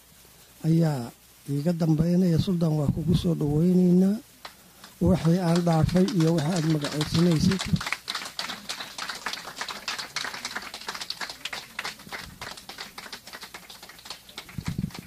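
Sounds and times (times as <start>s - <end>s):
audience clapping: 4.4s - 15.0s.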